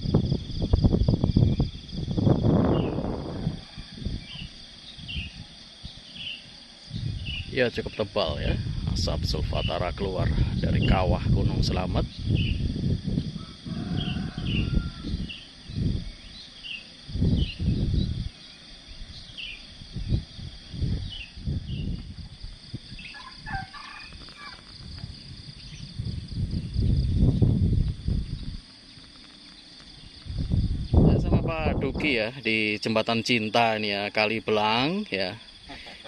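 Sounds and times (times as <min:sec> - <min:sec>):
gusty wind on microphone: 0:00.0 - 0:32.4
small birds chirping: 0:04.1 - 0:08.6, 0:09.2 - 0:12.7, 0:13.8 - 0:26.0.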